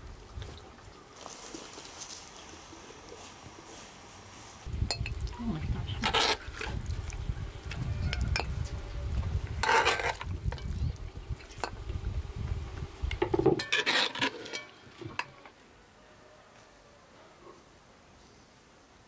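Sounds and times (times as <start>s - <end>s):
metal spoon scraping a pot: 6.0s - 6.7s, 9.6s - 10.8s, 13.5s - 15.5s.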